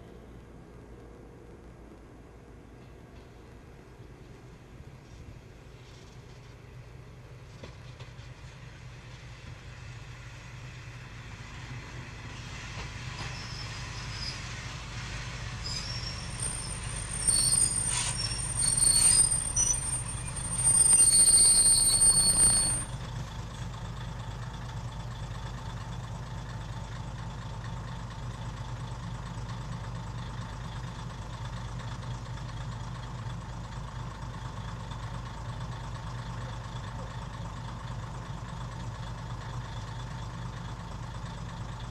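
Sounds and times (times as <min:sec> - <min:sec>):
diesel railcar pulling in: 0:00.0 - 0:41.9
high-pitched brake squeal: 0:13.2 - 0:14.6, 0:15.6 - 0:23.0
diesel engine idling: 0:16.3 - 0:41.9.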